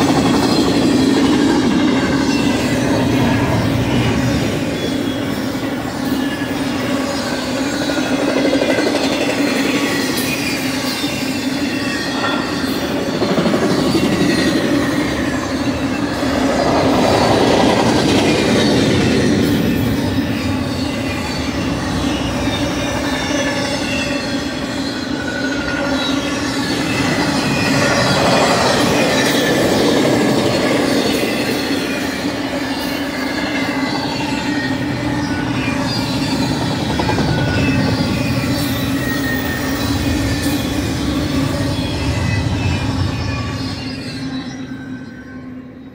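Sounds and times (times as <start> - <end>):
freight train wheels clattering: 0.0 - 43.9
faint high wheel squeal: 0.0 - 45.9.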